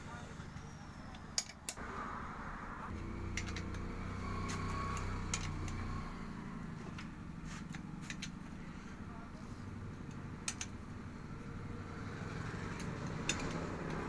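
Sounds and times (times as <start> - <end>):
socket wrench clicking: 10.4 - 10.7.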